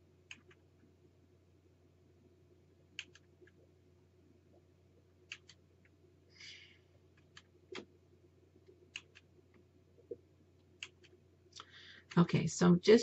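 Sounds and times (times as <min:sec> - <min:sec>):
low steady hum: 0:00.0 - 0:13.0
computer mouse clicks: 0:00.2 - 0:00.6, 0:02.9 - 0:03.6, 0:05.2 - 0:06.0, 0:07.1 - 0:07.9, 0:08.9 - 0:09.3, 0:10.7 - 0:11.2.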